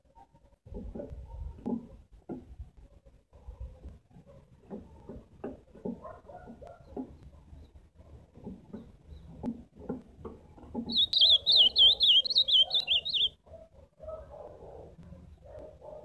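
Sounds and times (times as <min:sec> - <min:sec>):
bird singing warbling phrase: 0:10.9 - 0:13.3.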